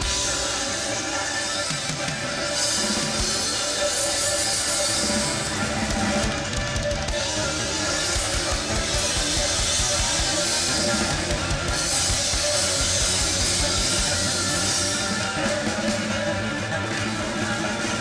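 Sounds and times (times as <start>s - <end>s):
rock band playing: 0.0s - 18.0s.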